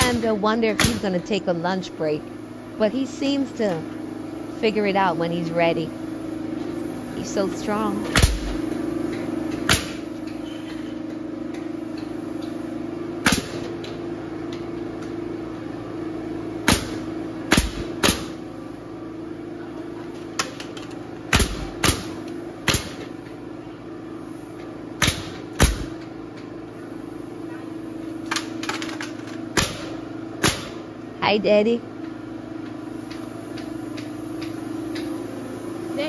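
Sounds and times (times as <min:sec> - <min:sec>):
steady low hum: 0:00.0 - 0:36.0
nail gun firing: 0:09.6 - 0:10.0, 0:13.2 - 0:13.7, 0:16.6 - 0:18.4, 0:21.3 - 0:23.1, 0:25.0 - 0:26.0, 0:29.5 - 0:30.8.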